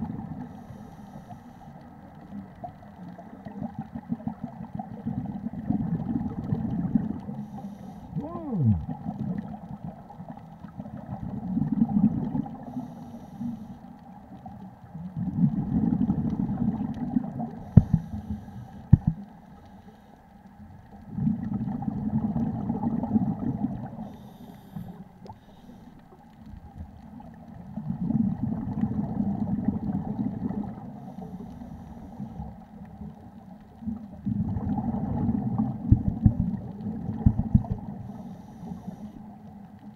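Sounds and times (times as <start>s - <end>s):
exhaled bubbles rumbling: 0.0s - 0.6s, 1.7s - 12.8s, 14.0s - 19.3s, 20.6s - 38.2s
diver breathing through regulator: 0.5s - 1.8s, 7.3s - 8.8s, 12.6s - 13.9s, 17.6s - 20.2s, 24.0s - 26.1s, 31.0s - 32.5s, 38.0s - 39.4s.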